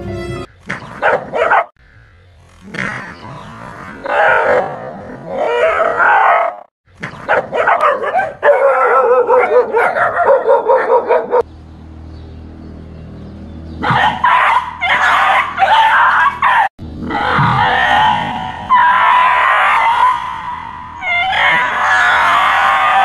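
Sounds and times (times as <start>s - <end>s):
dogs barking and yelping: 0.7s - 1.8s, 3.2s - 11.5s, 13.8s - 23.0s.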